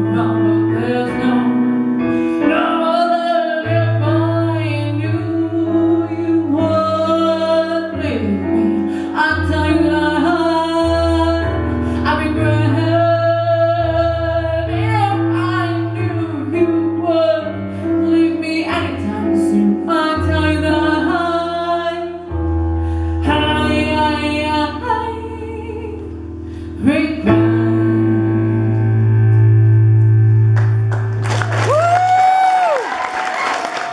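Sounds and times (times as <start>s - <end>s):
woman singing: 0.0s - 22.4s, 23.2s - 29.0s
keyboard accompaniment: 0.0s - 32.1s
applause: 30.6s - 33.9s.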